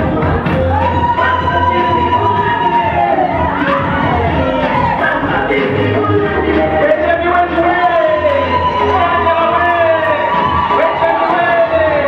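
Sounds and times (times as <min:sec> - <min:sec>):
crowd cheering and shouting: 0:00.0 - 0:12.0
music: 0:00.0 - 0:12.0.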